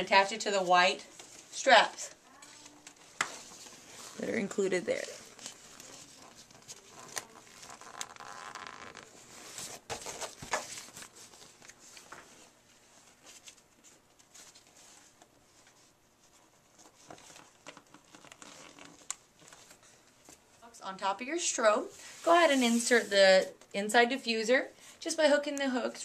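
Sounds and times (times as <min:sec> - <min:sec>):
fabric rustling: 0:21.6 - 0:23.6.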